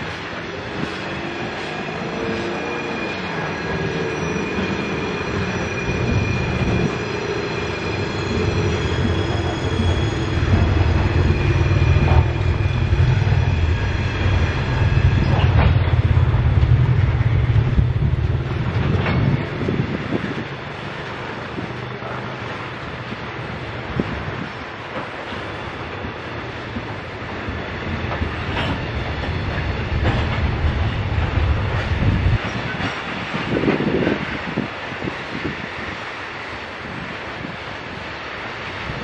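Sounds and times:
freight train rumble: 0:00.0 - 0:39.0
high-pitched wheel squeal: 0:01.2 - 0:16.0.

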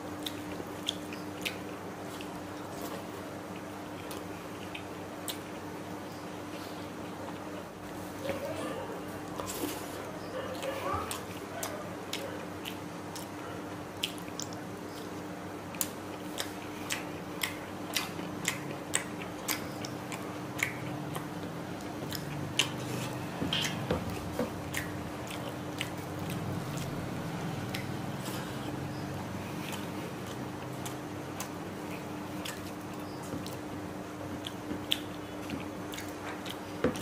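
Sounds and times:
chewing with wet mouth clicks: 0:00.2 - 0:05.7, 0:10.5 - 0:37.0
fingers squishing food: 0:10.6 - 0:27.0.

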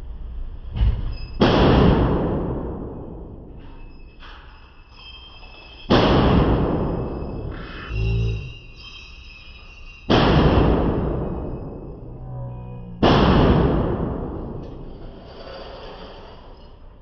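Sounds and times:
rifle gunshots ringing indoors: 0:01.4 - 0:03.3, 0:13.0 - 0:14.6.

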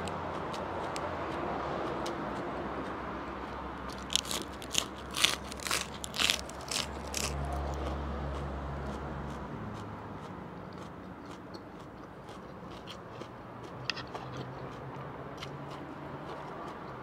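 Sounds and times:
quiet chewing: 0:00.0 - 0:17.0
lettuce crunching: 0:03.8 - 0:09.9.

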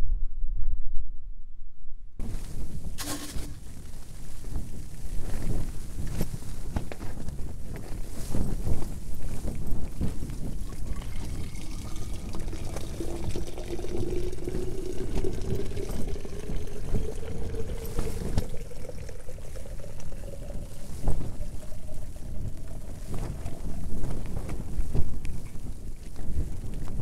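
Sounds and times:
low wind rumble on tent: 0:02.1 - 0:27.0
hot water pouring into bottle: 0:02.9 - 0:03.6, 0:09.8 - 0:24.7.

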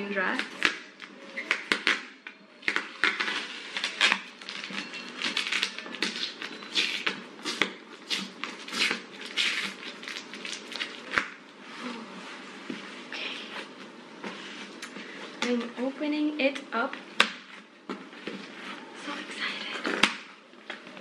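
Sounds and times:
packing tape ripping off cardboard: 0:00.4 - 0:11.4.

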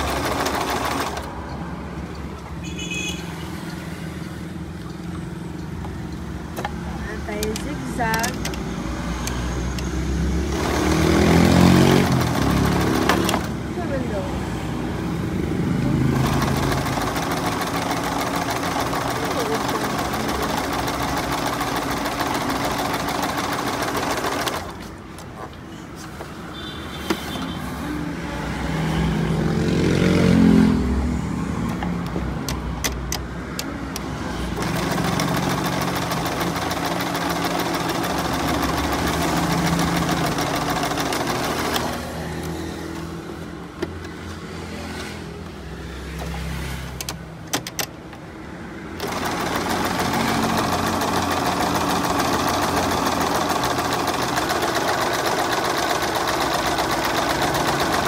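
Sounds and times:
sewing machine stitching: 0:00.0 - 0:01.4, 0:10.5 - 0:13.6, 0:16.0 - 0:25.0, 0:34.5 - 0:42.4, 0:49.0 - 0:58.0
sharp clicks: 0:32.4 - 0:34.1.

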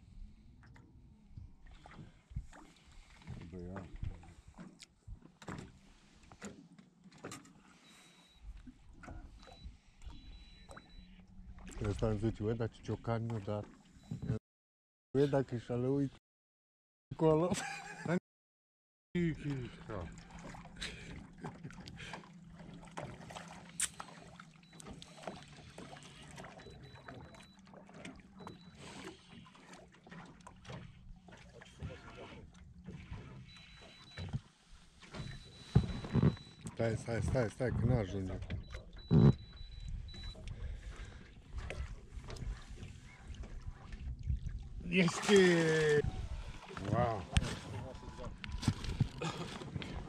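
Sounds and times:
water against boat hull: 0:00.0 - 0:14.4, 0:19.2 - 0:50.0.

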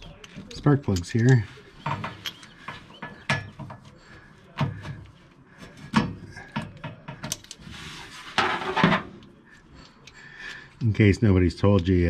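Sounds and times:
hand tools clanking on metal: 0:00.0 - 0:07.6.

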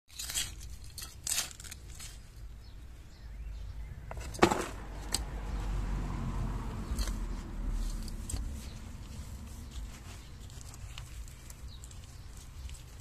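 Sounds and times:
hand fork scraping soil: 0:00.1 - 0:02.4, 0:06.8 - 0:13.0.

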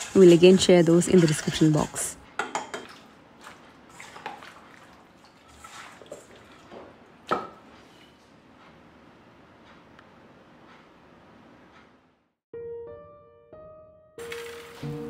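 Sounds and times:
wet squishing of hands: 0:02.8 - 0:06.7.

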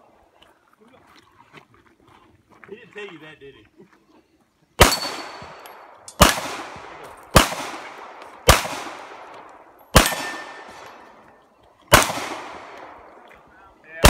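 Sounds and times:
pistol shots: 0:04.8 - 0:11.3, 0:11.9 - 0:13.4.

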